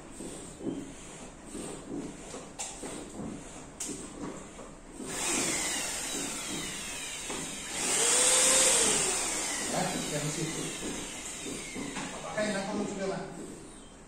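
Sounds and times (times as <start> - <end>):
electric air blower running: 5.0 - 12.7.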